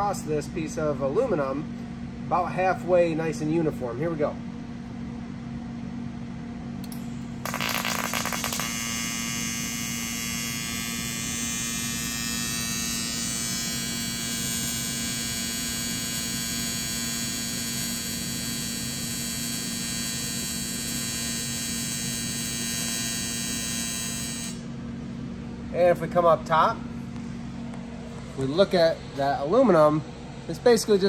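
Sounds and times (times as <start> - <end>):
welding arc buzzing: 6.8 - 24.8.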